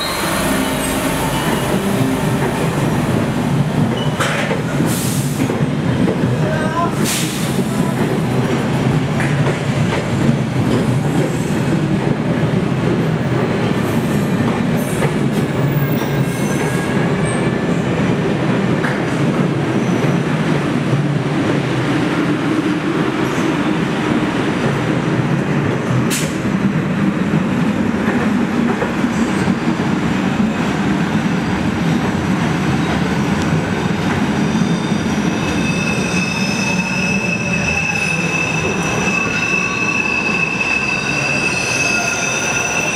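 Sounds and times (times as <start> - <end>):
high wheel squeal: 0.0 - 2.4, 34.4 - 42.9
subway train rumbling: 0.0 - 42.9.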